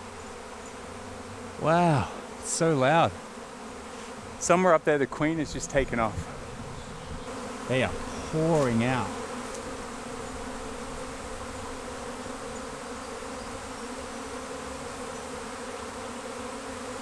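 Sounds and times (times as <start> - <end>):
bee swarm humming: 0.0 - 17.0.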